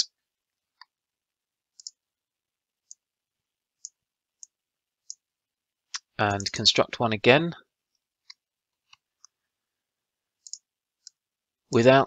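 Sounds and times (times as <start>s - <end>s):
computer mouse clicks: 1.7s - 2.0s, 3.8s - 5.2s, 10.4s - 11.2s.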